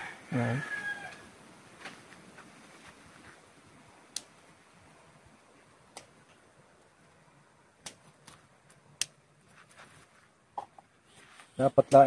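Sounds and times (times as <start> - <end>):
pruning scissors snipping twigs: 7.8 - 9.2.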